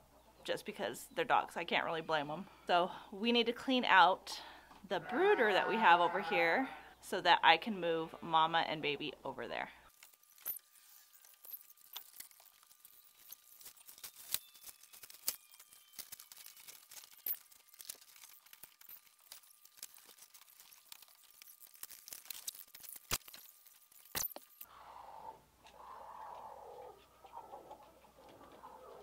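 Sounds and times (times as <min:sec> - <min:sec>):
hens clucking: 0:05.0 - 0:06.7, 0:25.2 - 0:29.0
scratchy rustling and scraping: 0:09.9 - 0:24.6.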